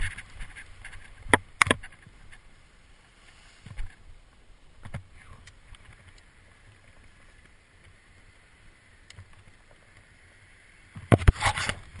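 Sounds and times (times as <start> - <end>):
faint steady hiss: 0.0 - 12.0
soft ticks: 4.8 - 8.0.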